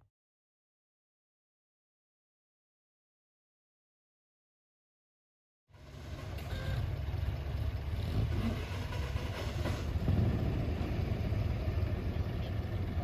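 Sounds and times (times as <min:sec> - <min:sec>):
car engine running at low revs: 0:05.7 - 0:13.0.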